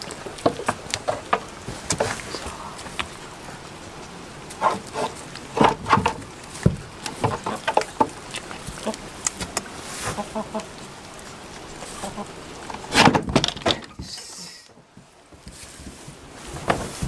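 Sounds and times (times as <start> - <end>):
hens clucking: 0.0 - 12.9
goat crunching vegetable: 0.0 - 13.0.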